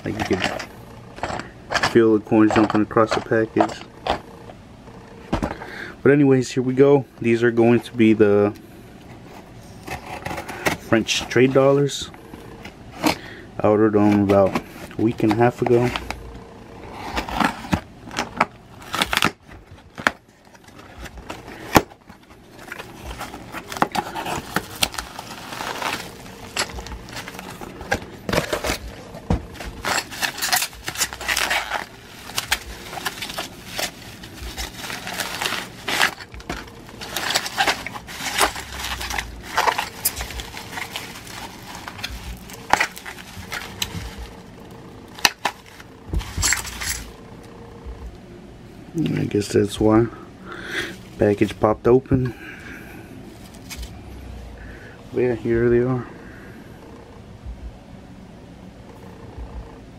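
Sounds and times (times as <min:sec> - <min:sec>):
bubble wrap crinkling: 0:14.2 - 0:47.2, 0:53.3 - 0:54.0
packing tape being cut: 0:17.0 - 0:44.3.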